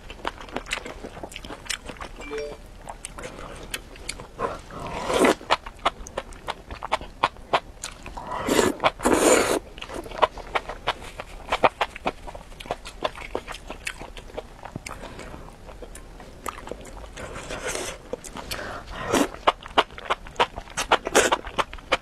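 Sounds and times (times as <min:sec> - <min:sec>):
wet chewing smacks: 0:05.1 - 0:22.0.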